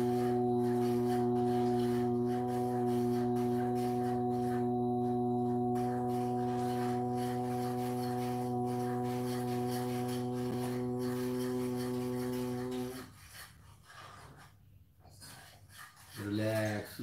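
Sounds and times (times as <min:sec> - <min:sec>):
man chanting om: 0:00.0 - 0:13.1.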